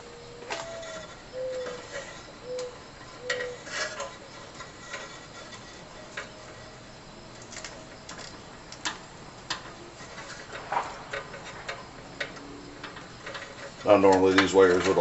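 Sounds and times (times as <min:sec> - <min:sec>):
short squeaks: 0:00.4 - 0:06.7
hands twisting wires clicking: 0:07.3 - 0:15.0.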